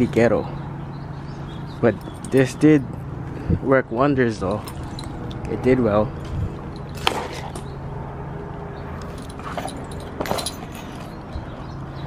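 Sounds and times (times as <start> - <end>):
metal tools clinking: 1.9 - 2.7, 4.5 - 5.6, 6.2 - 7.6, 9.0 - 12.0.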